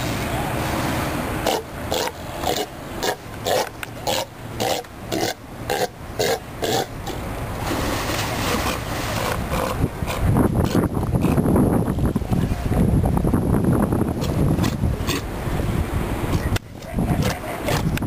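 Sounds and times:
sea lion barking: 0:01.4 - 0:07.2, 0:16.8 - 0:18.0.

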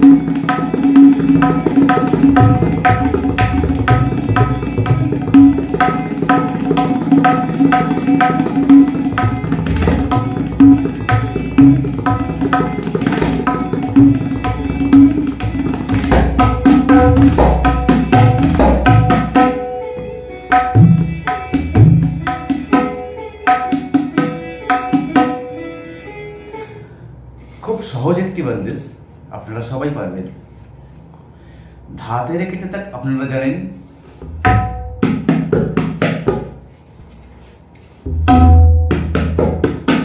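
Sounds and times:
tabla playing fast: 0:00.0 - 0:25.5, 0:34.2 - 0:36.6, 0:38.1 - 0:40.0.

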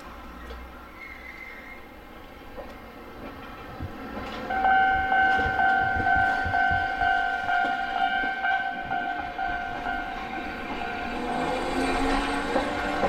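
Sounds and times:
tram rumble: 0:00.0 - 0:13.0
two-tone pulsing electronic alarm: 0:04.5 - 0:10.2.

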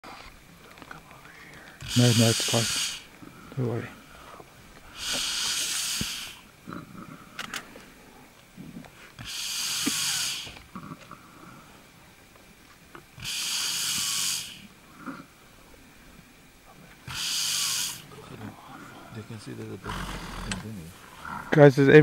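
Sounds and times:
buffalo heavy hissing breaths: 0:01.2 - 0:12.0, 0:13.2 - 0:15.8, 0:17.0 - 0:21.6
faint low grunts: 0:05.0 - 0:07.6, 0:18.0 - 0:21.7.

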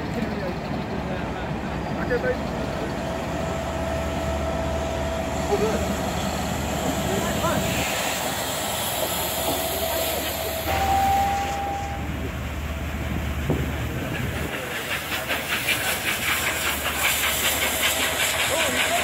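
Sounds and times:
diesel locomotive rumbling past: 0:00.0 - 0:19.0
steam locomotive exhaust beats: 0:00.0 - 0:19.0
steam hiss: 0:05.4 - 0:11.9, 0:13.5 - 0:19.0
train whistle note: 0:10.7 - 0:12.1.

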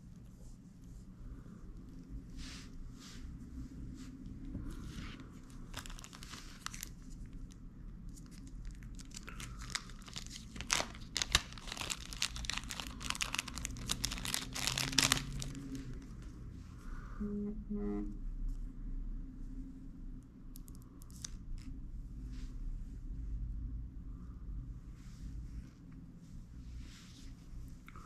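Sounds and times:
plastic packet crinkling: 0:05.6 - 0:16.0.

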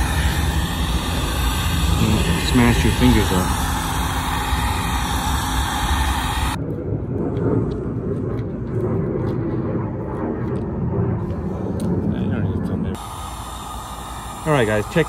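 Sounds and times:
heat gun airy hiss: 0:00.0 - 0:06.6, 0:13.0 - 0:15.0
heat gun fan rumble: 0:00.0 - 0:08.9, 0:09.8 - 0:15.0.

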